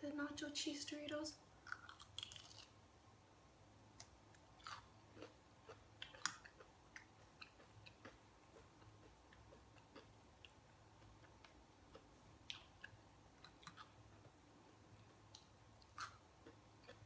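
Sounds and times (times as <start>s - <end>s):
chewing crunchy snack: 1.6s - 2.8s, 4.6s - 14.3s, 15.3s - 17.0s.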